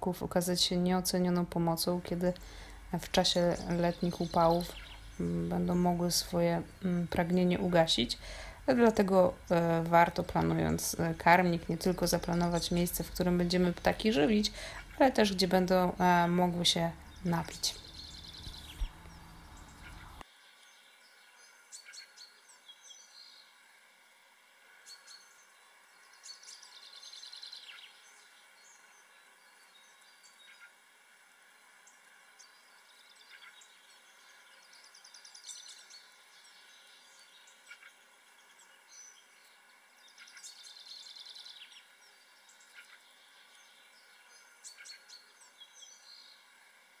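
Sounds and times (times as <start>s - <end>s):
songbird trilling: 3.3s - 8.4s, 10.6s - 20.2s
bird chirps: 3.3s - 8.5s, 11.4s - 20.2s.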